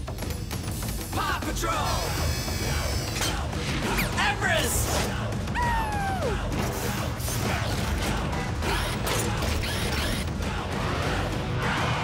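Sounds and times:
cartoon mechanical clicking and whirring: 0:06.7 - 0:10.3.

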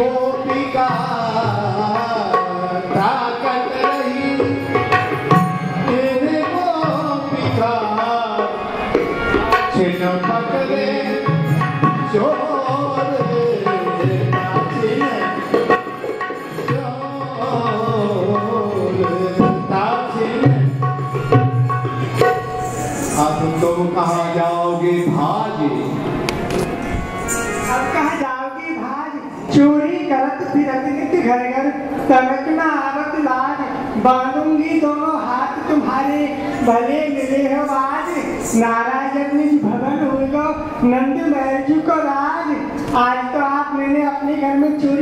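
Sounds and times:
tabla drumming: 0:00.0 - 0:28.6
wavering melodic line: 0:21.3 - 0:28.3.

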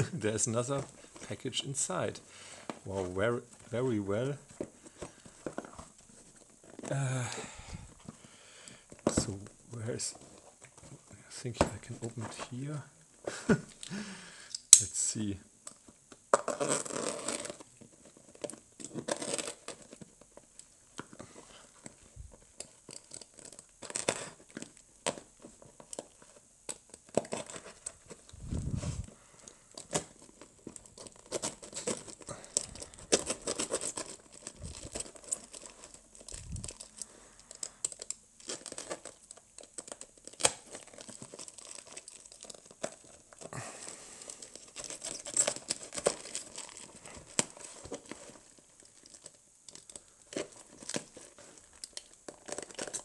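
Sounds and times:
duct tape crinkling and tearing: 0:16.3 - 0:53.0.

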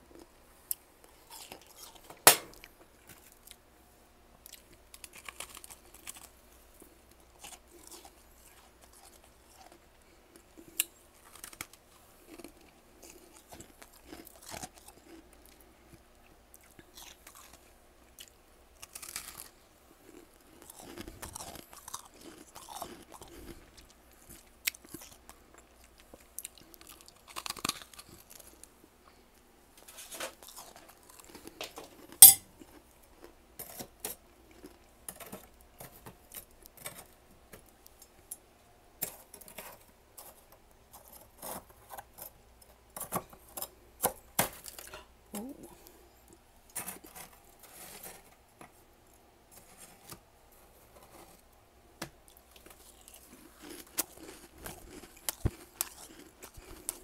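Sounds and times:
frost being chewed: 0:00.1 - 0:03.6, 0:04.4 - 0:29.2, 0:29.8 - 0:38.2, 0:52.2 - 0:57.0
sharp crack: 0:02.2 - 0:02.7.

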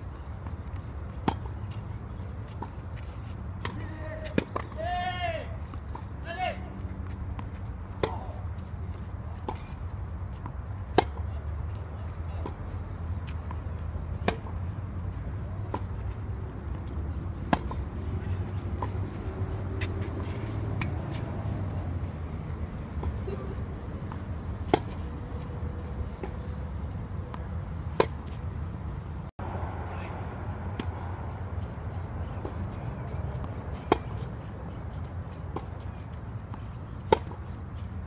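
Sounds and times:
tennis racket hitting ball: 0:01.0 - 0:01.8, 0:03.6 - 0:05.0, 0:07.4 - 0:08.4, 0:10.4 - 0:11.3, 0:14.1 - 0:14.7, 0:15.6 - 0:21.7, 0:24.0 - 0:25.2, 0:27.3 - 0:28.3, 0:32.3 - 0:38.0.

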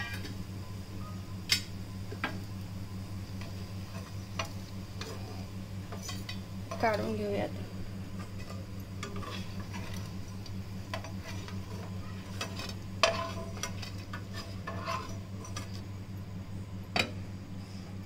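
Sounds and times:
low steady hum: 0:00.0 - 0:18.0
spoon scraping frying pan: 0:03.4 - 0:07.2, 0:08.0 - 0:15.8.

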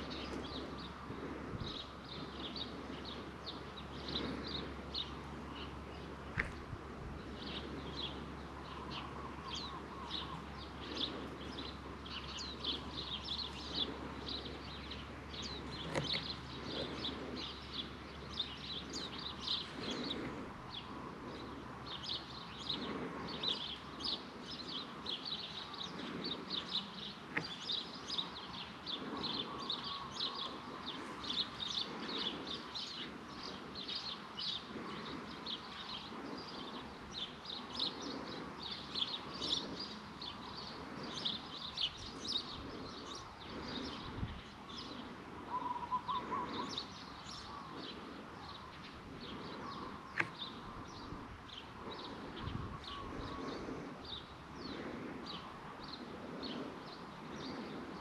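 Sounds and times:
birds chirping: 0:00.0 - 0:58.0
faint low rumble: 0:00.0 - 0:58.0.

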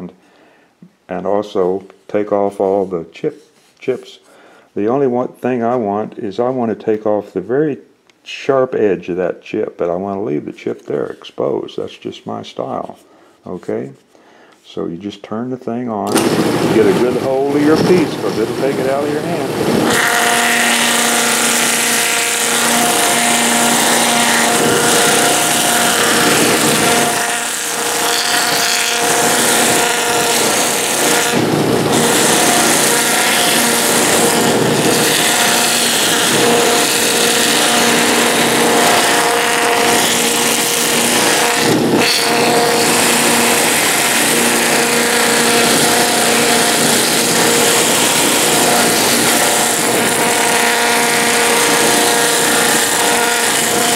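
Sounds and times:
electric motor hum: 0:16.1 - 0:53.9
sanding wheel rasping on wood: 0:16.6 - 0:53.9.

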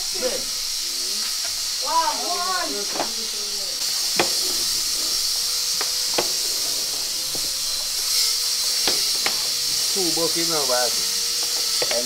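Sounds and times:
steady high hiss: 0:00.0 - 0:12.0
sharp knocks: 0:04.1 - 0:04.6.

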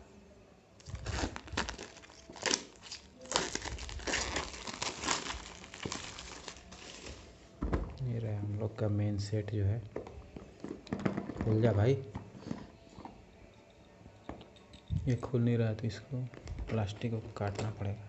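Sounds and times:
plastic wrap crinkling: 0:00.8 - 0:07.4.

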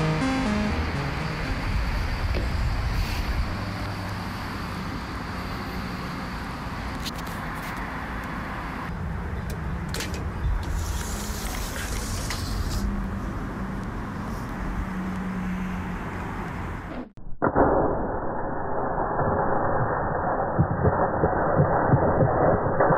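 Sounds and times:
low rumble of road traffic: 0:00.0 - 0:17.1.

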